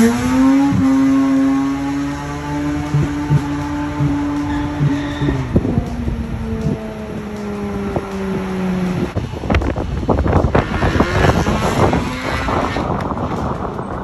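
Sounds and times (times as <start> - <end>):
vehicle engine running: 0.0 - 14.0
wind buffeting microphone: 2.8 - 14.0.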